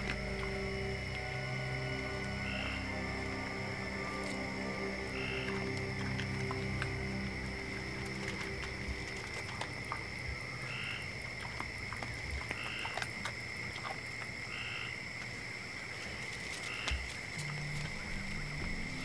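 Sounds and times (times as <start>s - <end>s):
high-pitched trill: 0.0s - 8.6s.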